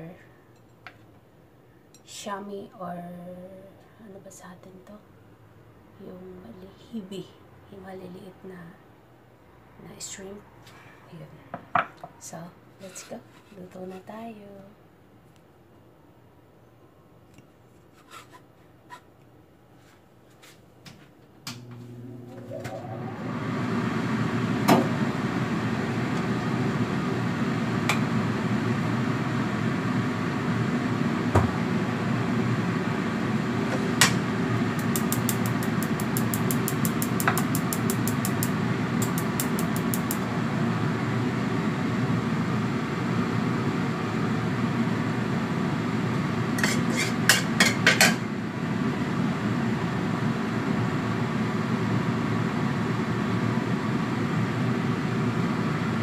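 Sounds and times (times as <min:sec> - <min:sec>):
range hood fan running: 0:20.8 - 0:56.0
gas igniter ticking: 0:34.8 - 0:40.2.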